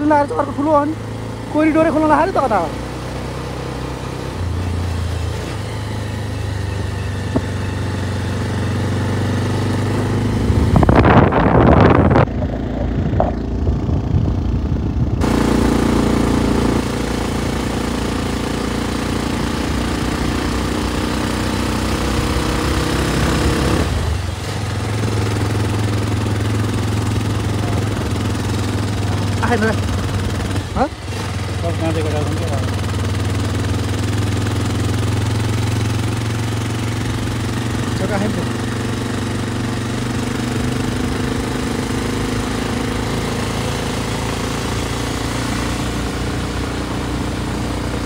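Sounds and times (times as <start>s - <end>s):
motorcycle engine running: 0.0s - 48.0s
wind noise on microphone: 10.4s - 15.2s.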